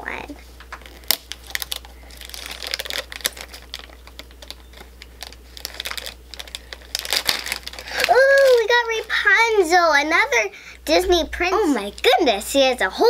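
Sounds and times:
foil bag crinkling and tearing: 0.1s - 10.0s.

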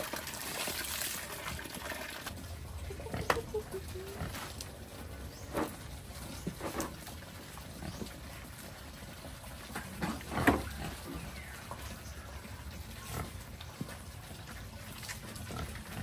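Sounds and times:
pigs grunting: 2.7s - 5.9s, 12.9s - 13.8s, 14.4s - 16.0s.

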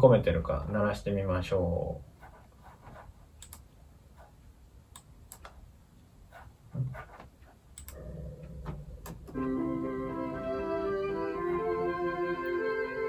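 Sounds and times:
computer mouse clicks: 3.4s - 3.7s, 4.9s - 5.6s, 7.7s - 8.0s.

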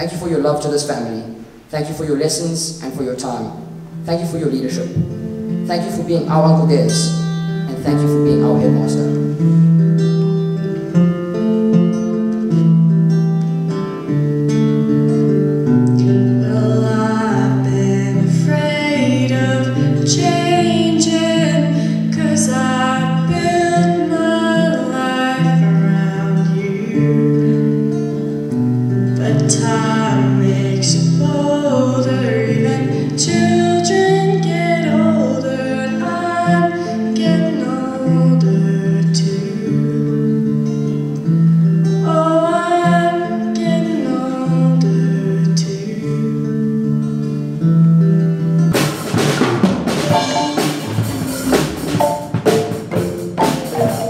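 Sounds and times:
acoustic guitar: 0.0s - 54.0s
woman singing into a microphone: 16.4s - 27.7s, 29.1s - 40.3s, 42.0s - 46.6s.

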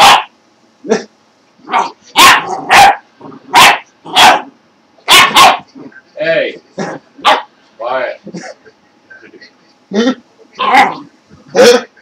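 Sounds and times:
dog barking: 0.0s - 0.3s, 1.7s - 5.7s, 7.2s - 7.5s.

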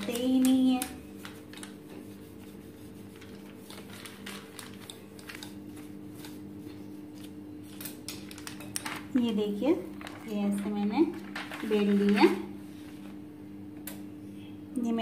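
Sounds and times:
rolling pin on paper rustling: 0.0s - 9.2s.

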